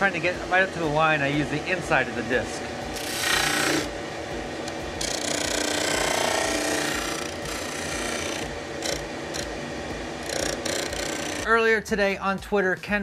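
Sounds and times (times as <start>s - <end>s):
disc sander sanding wood: 0.0s - 11.5s
sander motor hum: 0.0s - 11.5s.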